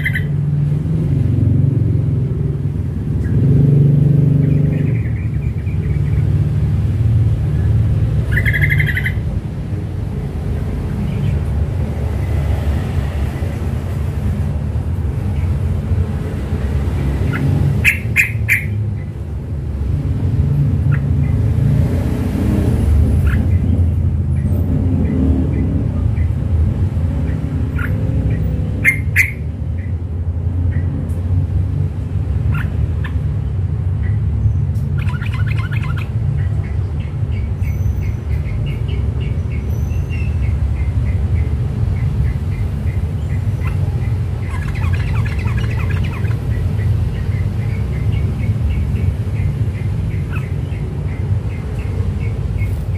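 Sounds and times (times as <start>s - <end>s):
bird chirps and squawks: 0.0s - 0.3s, 8.2s - 9.2s, 17.2s - 19.1s, 27.7s - 29.9s, 32.5s - 33.2s, 34.9s - 38.9s, 42.0s - 52.9s.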